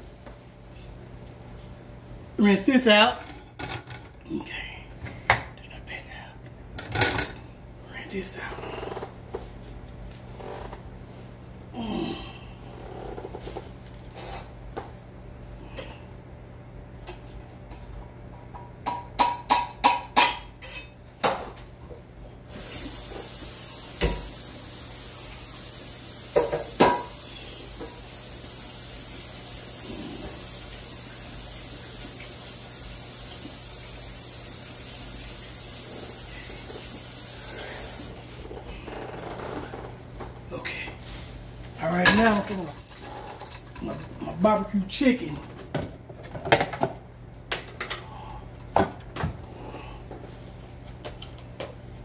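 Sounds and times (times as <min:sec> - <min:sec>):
tap running into a sink: 0:22.8 - 0:24.4, 0:26.2 - 0:28.2.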